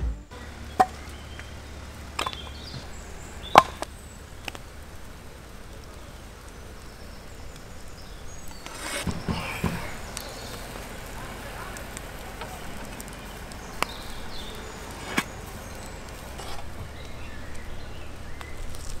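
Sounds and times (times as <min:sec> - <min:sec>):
wood fire burning: 0:00.2 - 0:19.0
rustling handling noise: 0:08.3 - 0:19.0.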